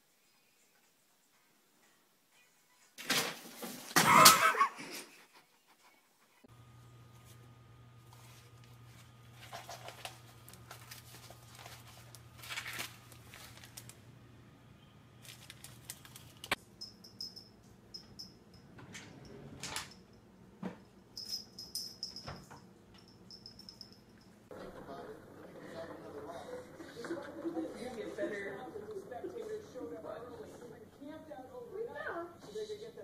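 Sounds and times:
electric fan humming: 6.5 - 33.0
paper rustling and crinkling: 8.0 - 14.0, 15.2 - 16.6.

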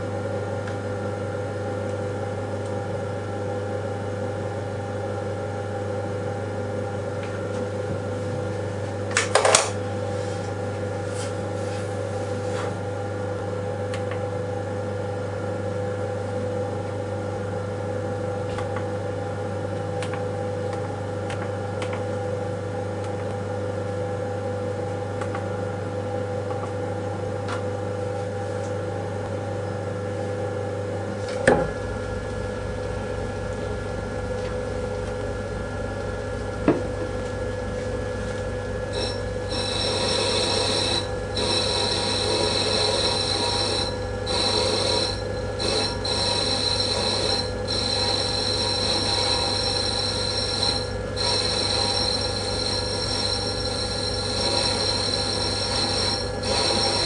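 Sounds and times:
lathe humming: 38.9 - 57.0
metal cutting squealing whine: 38.9 - 57.0.

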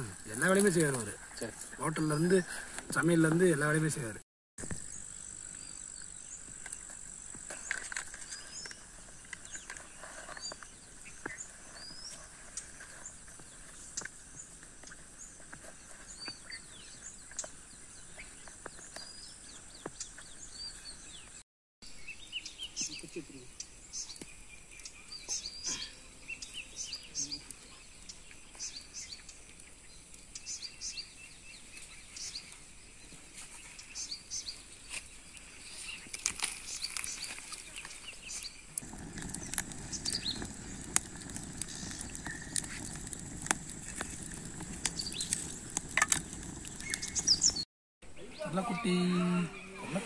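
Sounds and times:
wood fire crackling and popping: 0.0 - 4.0, 5.4 - 15.7, 36.0 - 47.7
birds chirping: 0.0 - 50.0
low rush of burning: 38.8 - 47.6.

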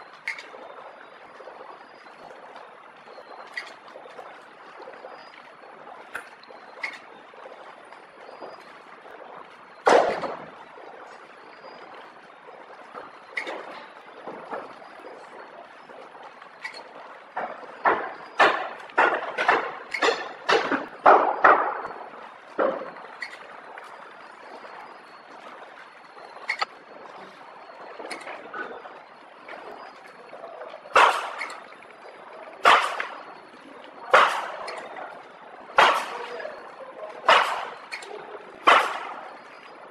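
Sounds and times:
low mechanical noise: 0.0 - 39.9
loud sharp clack: 31.0 - 31.5, 32.6 - 33.2, 34.1 - 34.7, 35.8 - 36.4, 37.3 - 37.8, 38.7 - 39.2.

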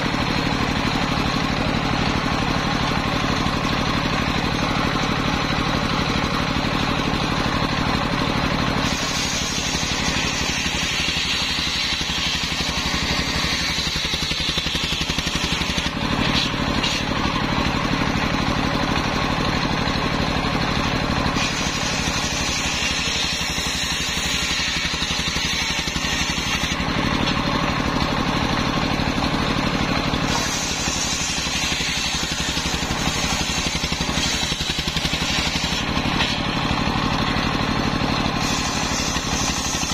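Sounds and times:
stationary engine running: 0.0 - 39.9
circular saw ripping logs: 8.6 - 19.2, 21.2 - 28.0, 29.5 - 39.9.

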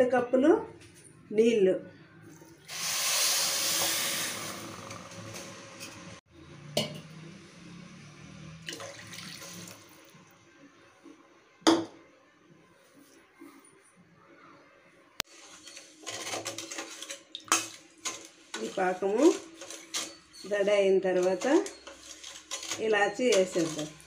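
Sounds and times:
water splashing into pan: 8.6 - 10.0.

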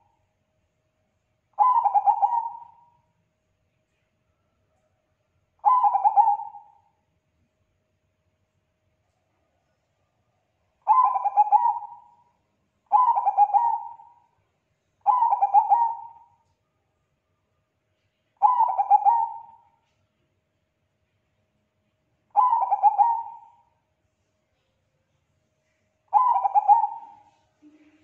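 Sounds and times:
dove cooing: 1.6 - 2.9, 5.6 - 6.8, 10.8 - 12.2, 12.9 - 14.2, 15.0 - 16.3, 18.4 - 19.7, 22.3 - 23.7, 26.1 - 28.0.

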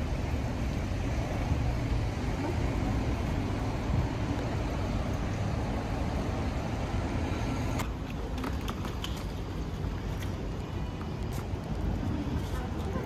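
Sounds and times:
passing cars rumbling: 0.0 - 7.9.

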